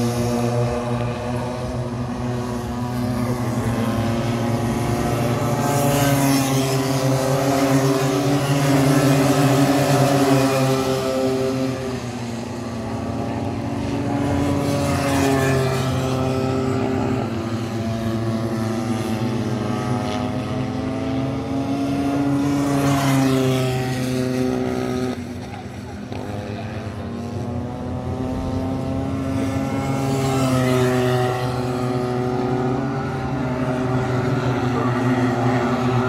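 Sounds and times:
racing kart engines: 0.0 - 36.0.

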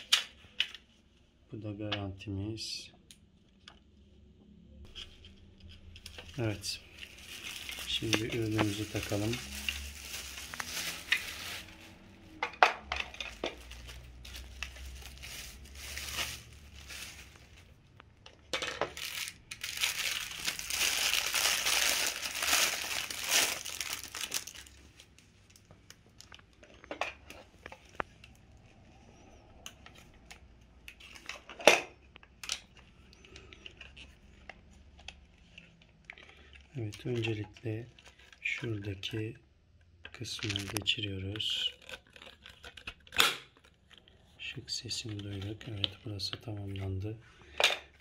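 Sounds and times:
plastic wrapping crinkling: 4.9 - 18.0, 18.8 - 28.4, 40.2 - 47.0.

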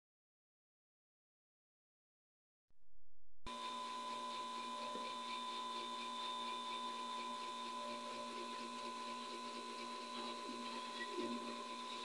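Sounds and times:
tesla coil humming and buzzing: 3.5 - 12.0.

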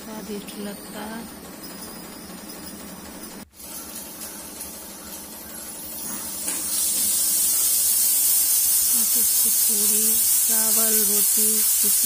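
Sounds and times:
pressure cooker hissing steam: 4.9 - 12.0.

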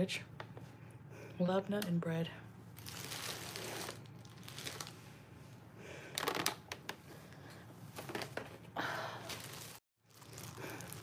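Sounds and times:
plastic bag crinkling: 2.8 - 5.0, 9.3 - 11.0.

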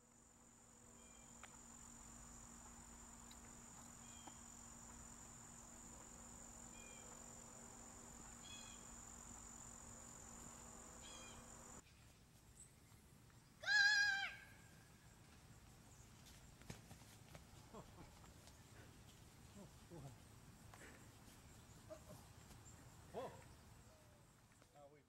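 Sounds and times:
high-pitched insect drone: 0.0 - 11.8
short insect chirps: 0.0 - 11.8.

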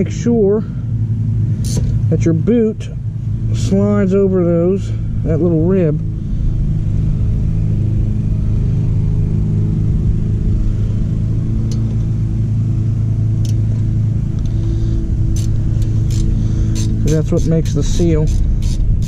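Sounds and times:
low mechanical hum: 0.0 - 19.0
wrench clicking on bolts: 15.4 - 18.8.

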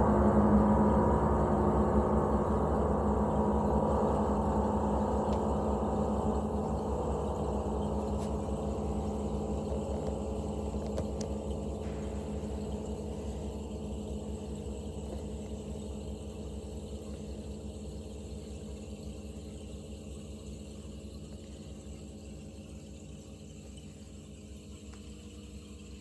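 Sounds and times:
faint ticks: 6.8 - 13.8, 23.2 - 25.7.

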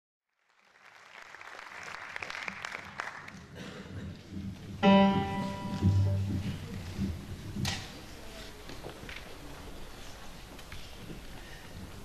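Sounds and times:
audience applause: 0.3 - 3.9
sustained instrument note: 4.8 - 6.6.

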